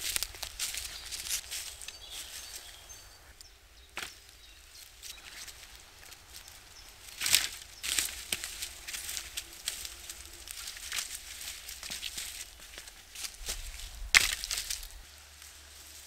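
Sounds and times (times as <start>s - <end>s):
sticks clattering on ground: 0.0s - 2.7s, 3.9s - 4.4s, 5.0s - 16.0s
footsteps on leaf litter: 0.0s - 3.2s, 3.8s - 16.0s
wooden sticks rattling: 5.1s - 16.0s.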